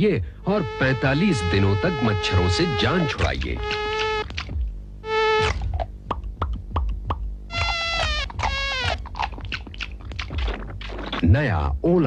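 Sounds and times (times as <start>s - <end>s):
mosquito buzzing: 0.5s - 5.8s, 7.5s - 9.3s.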